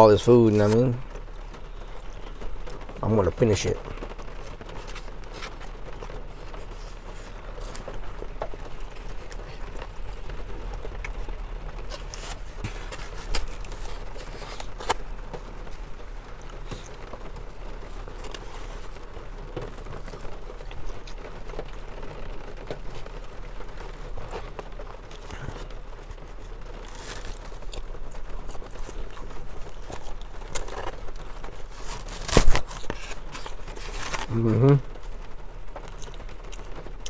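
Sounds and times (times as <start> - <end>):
rain pattering on car: 0.0 - 37.0
person chewing: 4.4 - 21.9, 22.8 - 35.2, 35.8 - 37.0
styrofoam container creaking: 11.8 - 15.8, 26.4 - 35.1.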